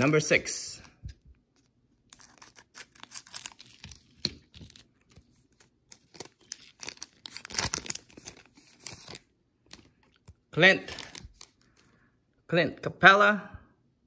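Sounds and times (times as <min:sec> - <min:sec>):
plastic wrapper tearing and crinkling: 0:02.0 - 0:11.7.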